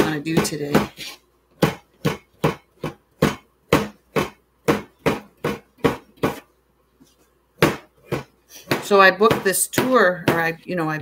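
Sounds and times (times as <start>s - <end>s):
knife chopping on cutting board: 0.0s - 6.5s, 7.6s - 10.5s.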